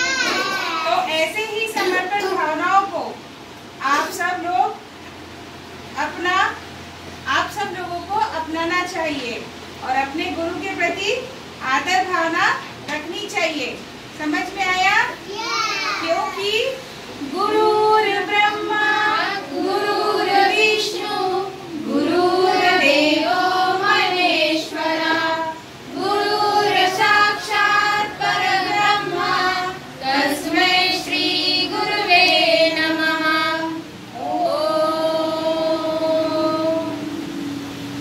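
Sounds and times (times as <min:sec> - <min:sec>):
children singing in unison: 0:17.3 - 0:37.6.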